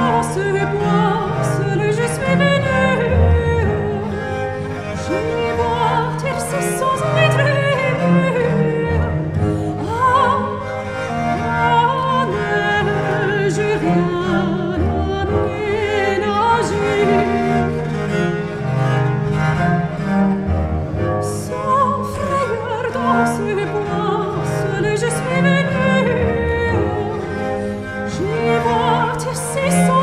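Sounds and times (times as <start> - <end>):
bowed viola da gamba bass line: 0.0 - 30.0
soprano singing with vibrato: 5.0 - 9.2, 21.3 - 27.4, 28.1 - 30.0.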